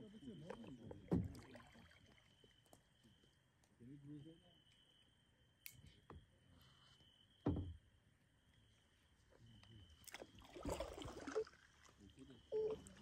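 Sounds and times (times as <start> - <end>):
faint insect trill: 0.0 - 13.0
paddle splashes and drips: 0.4 - 2.8, 10.0 - 13.0
dull knock: 7.4 - 7.8.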